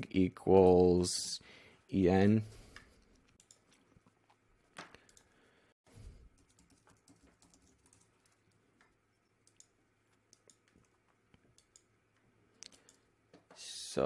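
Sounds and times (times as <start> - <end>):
keyboard and mouse clicks: 2.7 - 4.1, 4.7 - 5.4, 6.3 - 13.6.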